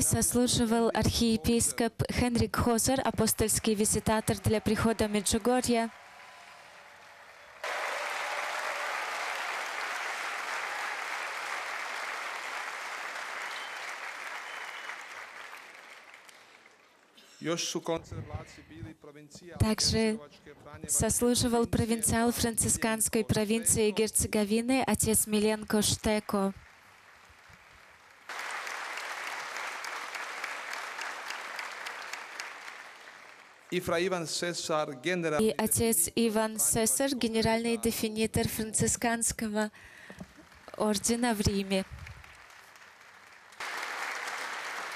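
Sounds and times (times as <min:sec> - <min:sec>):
large crowd applauding: 0:03.2 - 0:17.2, 0:25.3 - 0:34.2, 0:39.9 - 0:44.9.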